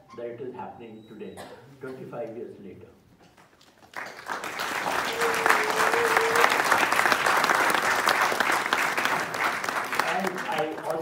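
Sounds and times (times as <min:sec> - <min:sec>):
audience applauding: 0:03.8 - 0:11.0.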